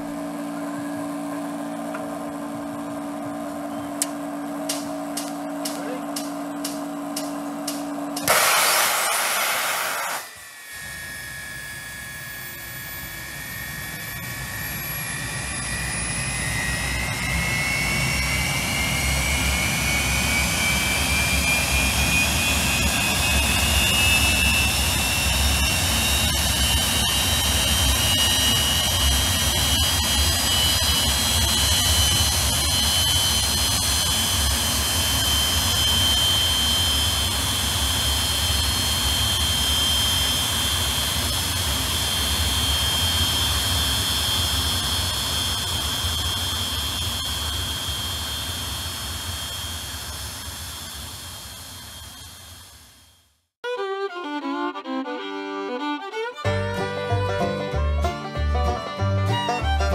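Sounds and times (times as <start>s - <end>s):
jet engine whine rising: 0.0s - 53.3s
cartridge starter blast: 4.7s - 10.3s.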